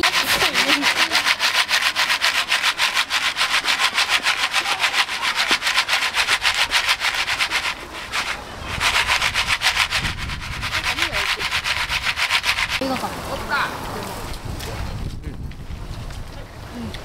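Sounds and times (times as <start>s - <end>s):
popcorn pan shaken rasping: 0.0s - 12.8s.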